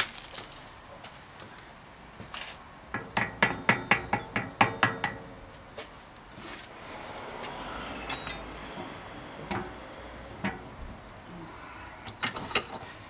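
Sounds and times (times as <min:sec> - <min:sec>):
metallic clicks of tools on wheel hub: 0:08.1 - 0:08.6.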